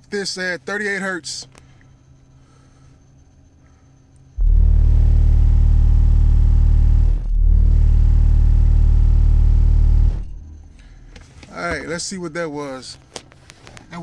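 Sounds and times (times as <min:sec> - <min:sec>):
loud bass test tone: 0:04.4 - 0:11.0.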